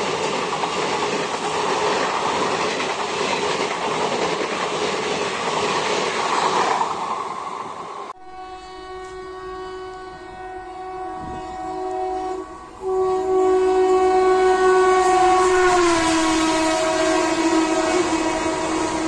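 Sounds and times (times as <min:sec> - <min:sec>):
locomotive air horn blast: 0:08.2 - 0:19.0
train coaches rushing past: 0:14.9 - 0:19.0.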